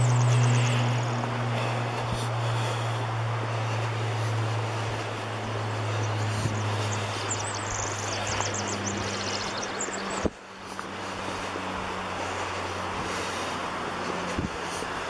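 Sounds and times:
creek rushing: 0:00.0 - 0:15.0
low steady hum: 0:00.0 - 0:15.0
bird chirping: 0:05.9 - 0:10.3.

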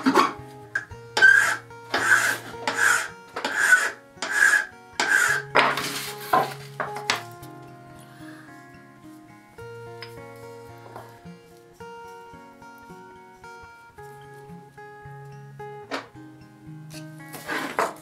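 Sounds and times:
file scraping metal: 0:00.0 - 0:07.2, 0:17.4 - 0:18.0
background music: 0:00.0 - 0:18.0.

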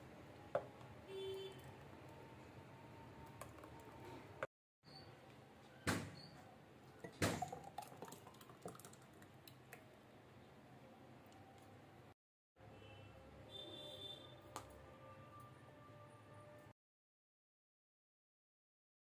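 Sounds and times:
thick drink pouring into glass: 0:07.0 - 0:09.8.

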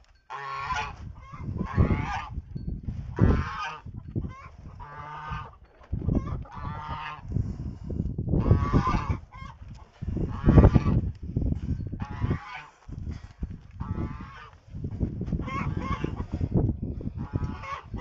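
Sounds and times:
goose honking: 0:00.3 - 0:02.3, 0:03.2 - 0:07.2, 0:08.4 - 0:11.0, 0:12.0 - 0:12.8, 0:13.8 - 0:14.5, 0:15.4 - 0:16.3, 0:17.2 - 0:18.0.

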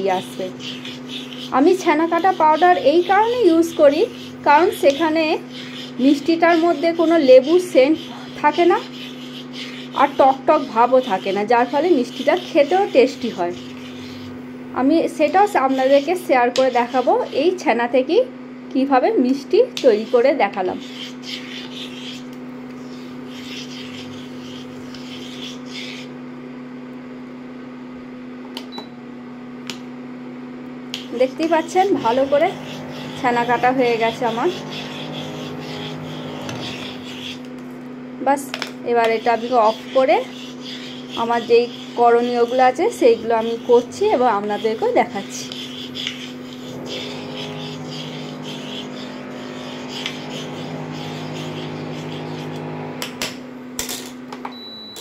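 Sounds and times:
spoon scraping in pan: 0:00.0 - 0:14.5, 0:31.0 - 0:37.6, 0:38.6 - 0:52.9
induction cooktop humming: 0:00.0 - 0:55.0.

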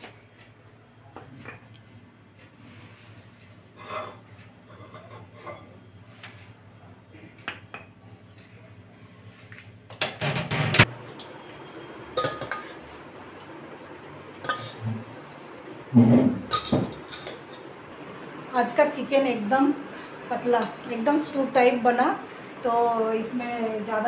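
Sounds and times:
dishes clattering: 0:12.2 - 0:12.9, 0:14.4 - 0:14.8, 0:16.0 - 0:17.6
metal dishes clinking: 0:12.2 - 0:12.9, 0:14.4 - 0:14.8, 0:16.4 - 0:17.6.

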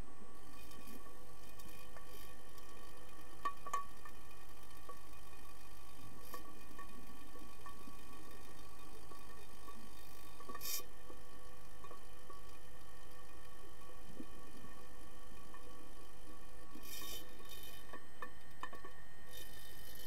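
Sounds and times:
underwater steady hum: 0:00.0 - 0:20.0
sharp clicks and knocks: 0:17.8 - 0:19.0.

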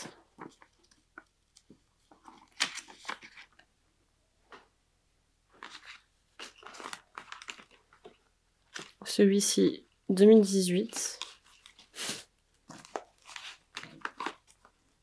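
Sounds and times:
paper rustling: 0:00.0 - 0:03.7, 0:05.5 - 0:09.1, 0:12.7 - 0:14.8.

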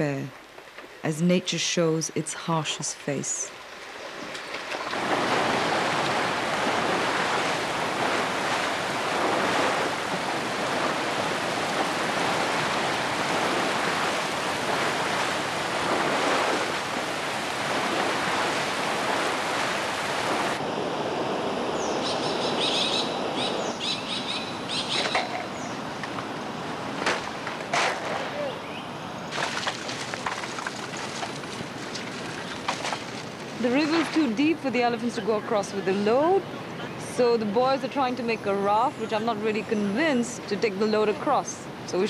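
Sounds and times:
water rushing: 0:01.6 - 0:42.0
birds chirping: 0:21.7 - 0:26.2, 0:28.3 - 0:29.4, 0:31.8 - 0:42.0.

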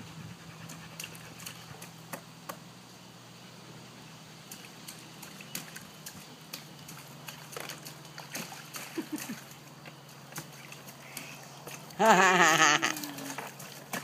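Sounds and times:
water splashes and taps: 0:04.5 - 0:12.0, 0:13.0 - 0:14.0.

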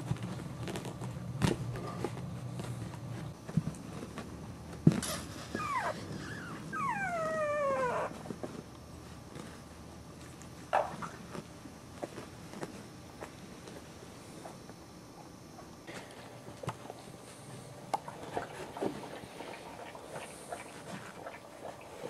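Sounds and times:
puppy whimpering: 0:05.5 - 0:08.2.

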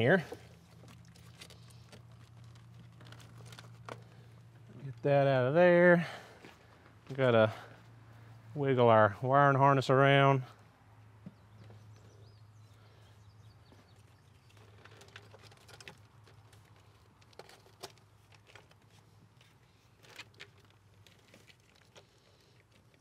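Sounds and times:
low steady hum: 0:00.0 - 0:23.0
wiring harness rustling and clicking: 0:00.2 - 0:05.0, 0:14.0 - 0:23.0.

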